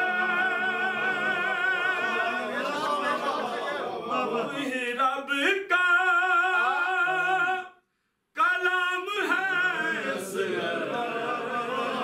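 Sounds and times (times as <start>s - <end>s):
man singing unaccompanied: 4.5s - 7.8s, 8.4s - 10.1s.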